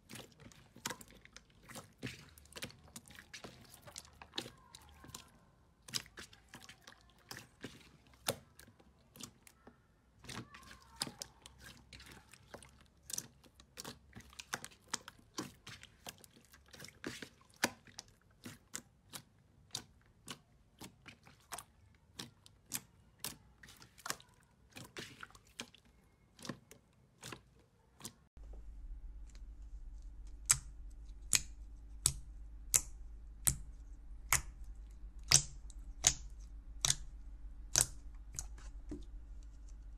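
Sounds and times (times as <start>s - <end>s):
low hum: 28.4s - 39.9s
slime clicks and pops: 37.7s - 38.5s.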